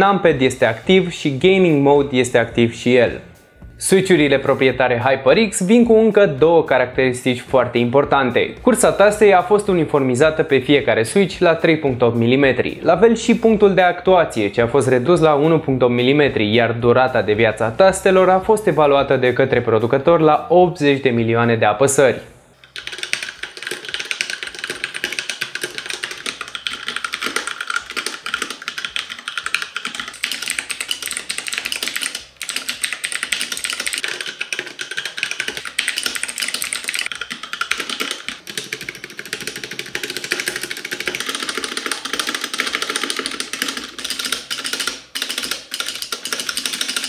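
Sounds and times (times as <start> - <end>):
fast mechanical keyboard typing: 22.6 - 47.0.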